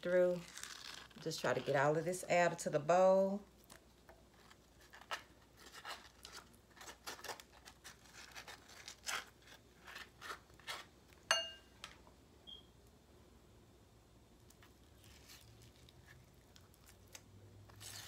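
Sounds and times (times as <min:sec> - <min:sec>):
metal tool clinking glass bowl: 0:11.3 - 0:11.7.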